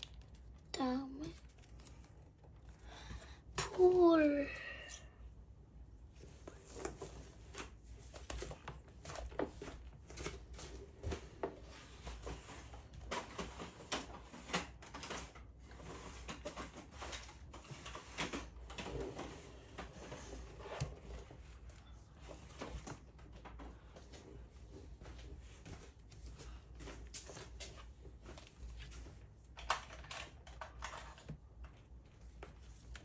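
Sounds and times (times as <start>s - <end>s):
small paper clicks: 0.0s - 2.8s.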